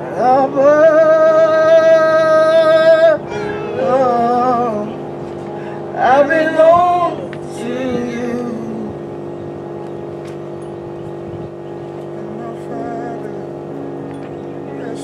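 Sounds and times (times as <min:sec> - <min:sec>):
person singing wordless phrases: 0:00.0 - 0:03.2, 0:12.2 - 0:13.5
sustained instrumental chord: 0:00.0 - 0:15.0.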